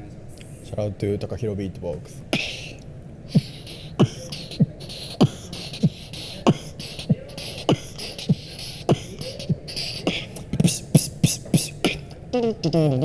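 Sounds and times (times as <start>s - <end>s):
beatboxing kick-drum sounds: 2.3s - 13.0s
beatboxing hi-hat and snare sounds: 2.4s - 13.0s.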